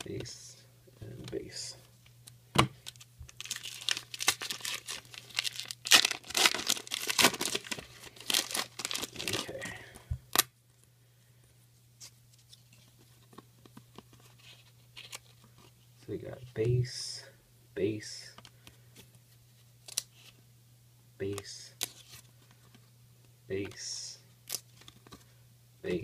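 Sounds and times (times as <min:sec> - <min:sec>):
cards being handled: 0:02.2 - 0:09.6, 0:12.0 - 0:15.8
foil pack tearing and crinkling: 0:02.9 - 0:09.6.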